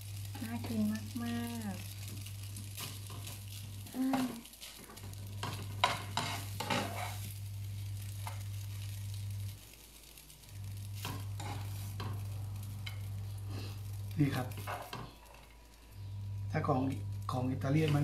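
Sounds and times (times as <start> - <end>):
faint sizzling in a frying pan: 0.0 - 18.0
low electrical hum: 0.0 - 18.0
kitchen utensils clinking and scraping: 4.1 - 7.3, 11.0 - 12.2.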